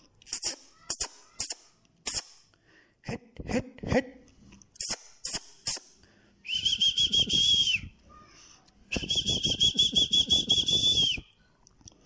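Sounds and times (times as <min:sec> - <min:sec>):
sharp hissing clicks: 0:00.2 - 0:02.4
steady high whistle: 0:06.4 - 0:08.0, 0:08.9 - 0:11.3.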